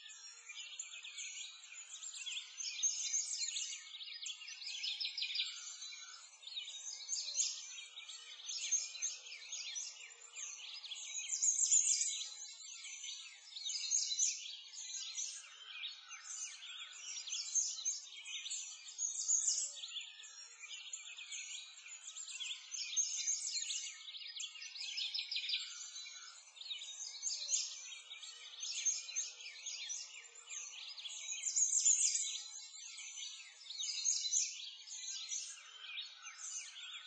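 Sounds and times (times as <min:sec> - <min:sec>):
small birds chirping and twittering: 0:00.0 - 0:37.0.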